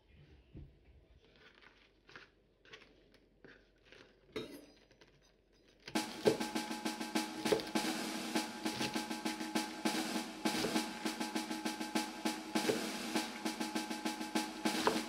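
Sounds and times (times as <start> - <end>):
loud music with drums: 6.0 - 15.0.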